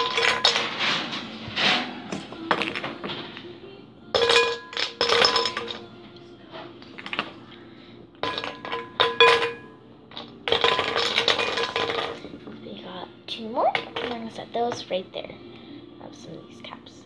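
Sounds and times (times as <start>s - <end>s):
glassy ringing: 4.1s - 5.9s, 8.2s - 9.8s
baubles clinking against glass bowl: 4.2s - 5.9s, 8.2s - 12.3s.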